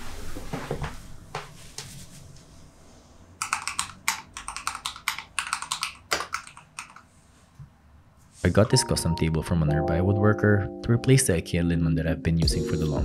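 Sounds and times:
mechanical keyboard key clicks: 0:03.4 - 0:07.0.

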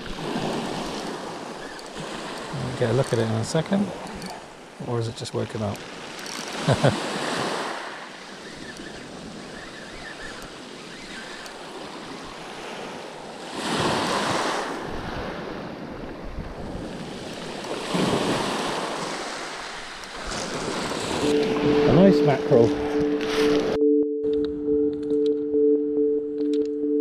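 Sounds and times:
wind on microphone: 0:08.3 - 0:23.8
waves breaking on shingle: 0:17.0 - 0:21.2.

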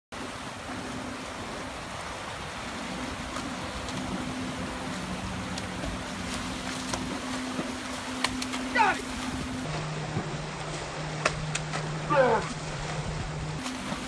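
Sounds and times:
river water rushing: 0:00.1 - 0:14.0
low steady hum: 0:00.2 - 0:14.0.

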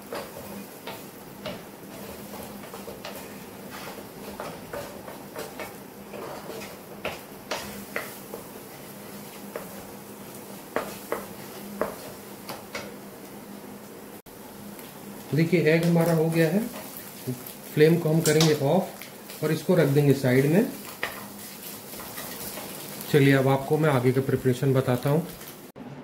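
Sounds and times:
spatula tapping frying pan: 0:00.0 - 0:08.6, 0:09.5 - 0:09.8, 0:10.7 - 0:13.0, 0:20.8 - 0:23.0.

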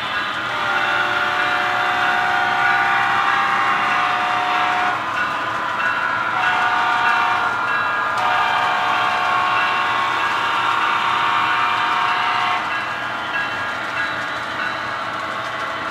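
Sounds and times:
train horn blasts: 0:00.0 - 0:05.3, 0:06.1 - 0:13.4.

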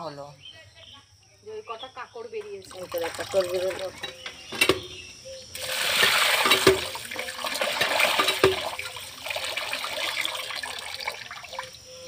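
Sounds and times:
water sloshing rice: 0:02.6 - 0:04.0, 0:05.6 - 0:11.8
water rushing into metal pan: 0:02.6 - 0:04.7, 0:05.5 - 0:11.8.

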